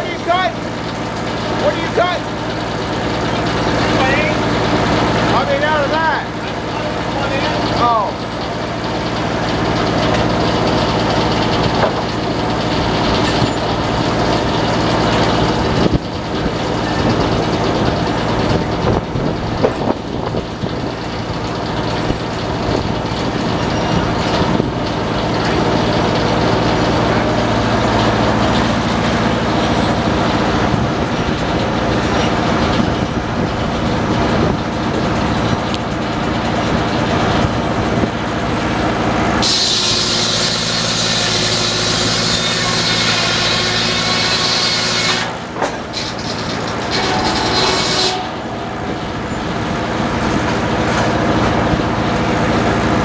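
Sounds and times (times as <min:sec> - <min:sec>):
machinery hum: 0:00.0 - 0:53.0
circular saw blade spinning: 0:39.4 - 0:50.4
high whine of sawing log: 0:39.4 - 0:50.8.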